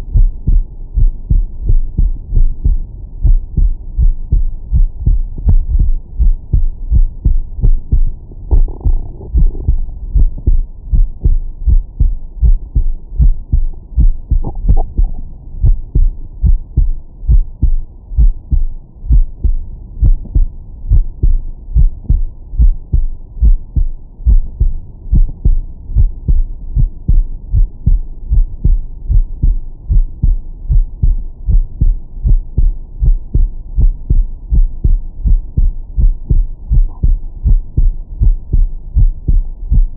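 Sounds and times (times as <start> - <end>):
heartbeat through stethoscope: 0.0 - 39.9.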